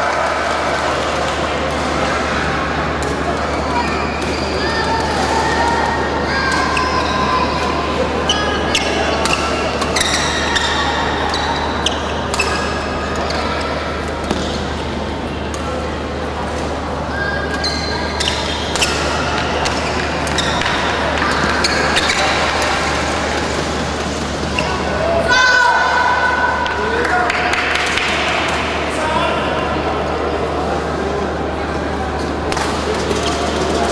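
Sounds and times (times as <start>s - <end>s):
murmur of voices: 0.0s - 33.9s
shoes squeaking on court: 17.1s - 24.9s
rackets striking shuttlecock: 18.2s - 24.2s.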